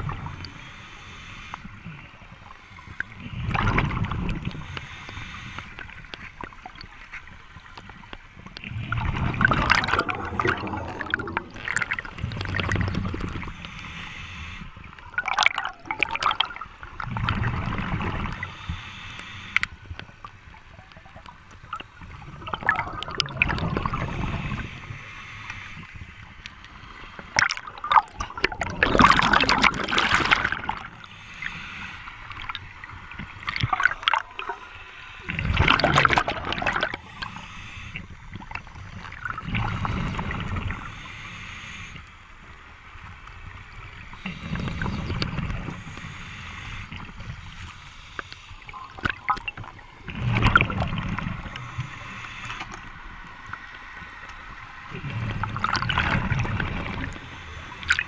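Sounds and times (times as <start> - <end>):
diver exhaling bubbles underwater: 8.7 - 13.5, 22.2 - 24.8, 27.4 - 30.9, 33.5 - 37.2, 48.7 - 52.1, 54.9 - 58.0.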